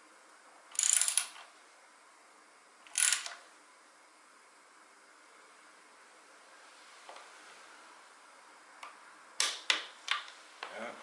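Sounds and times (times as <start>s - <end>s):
ratchet wrench clicking: 0.7s - 1.4s, 2.9s - 3.4s.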